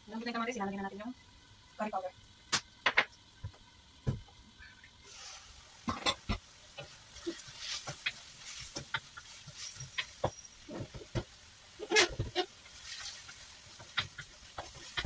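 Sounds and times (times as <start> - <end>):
vegetables sizzling in wok: 0.0 - 15.0
wooden spatula scraping wok: 5.1 - 15.0.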